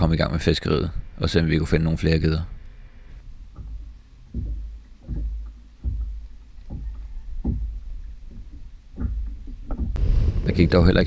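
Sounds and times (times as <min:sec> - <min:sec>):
kayak paddle strokes in water: 0:03.5 - 0:10.0.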